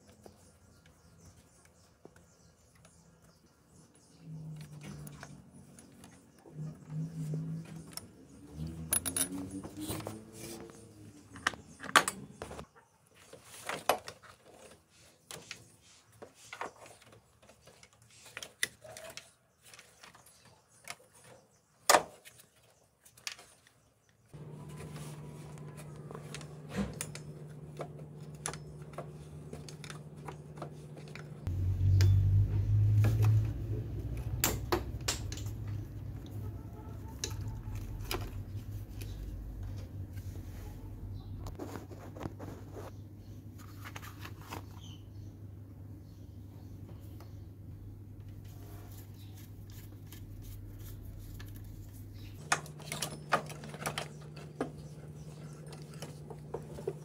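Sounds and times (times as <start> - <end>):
steady low hum: 24.4 - 43.6.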